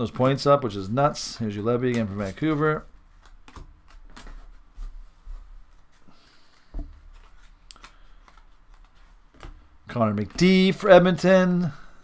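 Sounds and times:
cards tapping and clicking: 0:01.4 - 0:04.4, 0:06.8 - 0:10.7
trading cards sliding: 0:06.3 - 0:09.6.

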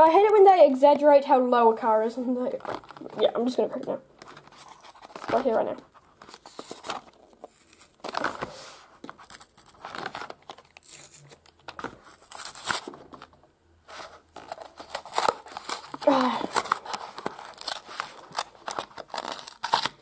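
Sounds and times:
plastic blister crackling: 0:02.5 - 0:13.4, 0:14.3 - 0:20.0
cardboard tearing: 0:04.2 - 0:13.3, 0:13.9 - 0:20.0.

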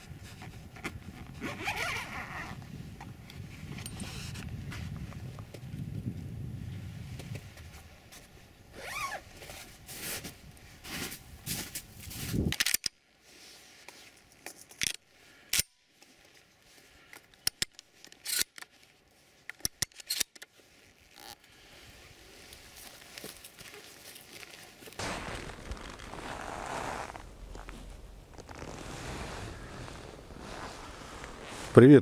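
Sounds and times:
clothing rustling: 0:20.8 - 0:32.0.

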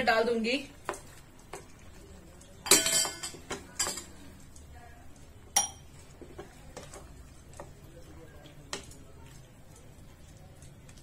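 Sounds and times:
metal spoon clinking on pan: 0:02.6 - 0:04.2, 0:05.5 - 0:05.9.

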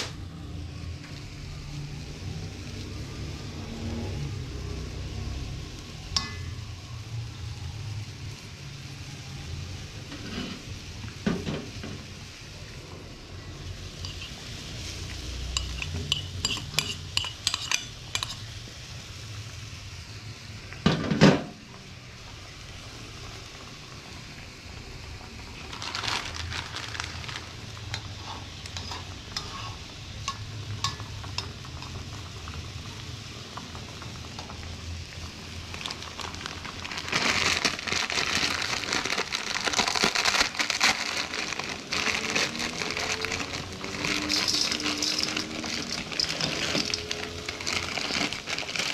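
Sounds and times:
food sizzling in a pan: 0:00.0 - 0:48.9
metal utensil scraping pan: 0:10.1 - 0:10.7, 0:14.0 - 0:14.4, 0:15.4 - 0:18.5, 0:27.9 - 0:32.0, 0:43.8 - 0:47.5.

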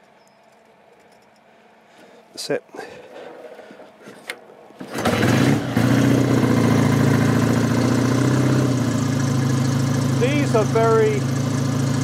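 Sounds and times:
motorcycle engine starting and idling: 0:03.1 - 0:12.0.

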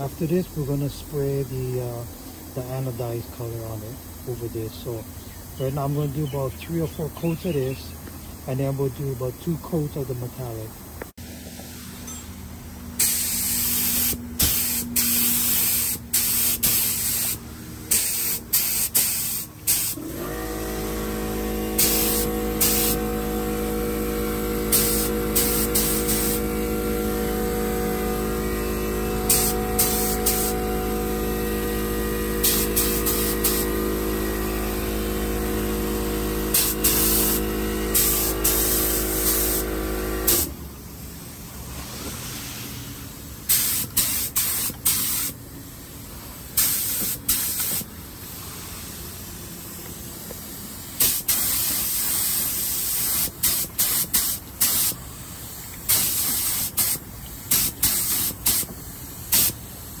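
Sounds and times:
electrical hum: 0:00.0 - 0:44.0
spray paint can hissing: 0:13.0 - 0:20.0, 0:21.8 - 0:23.0, 0:24.7 - 0:26.5, 0:29.2 - 0:30.9, 0:32.3 - 0:33.9, 0:36.5 - 0:40.5, 0:43.5 - 0:45.4, 0:46.6 - 0:47.9, 0:50.2 - 0:55.0, 0:55.7 - 0:59.6.

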